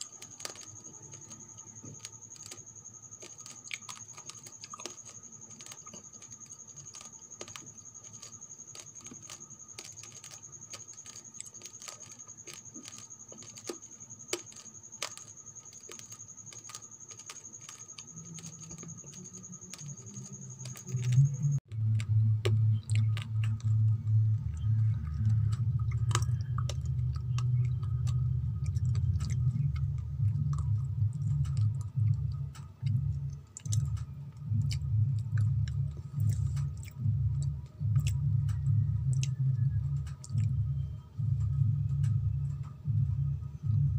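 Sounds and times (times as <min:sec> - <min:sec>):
rice grains crunching when chewed: 0:00.0 - 0:38.2
faint high whine: 0:00.0 - 0:43.9
low pulsing rumble: 0:20.6 - 0:43.9.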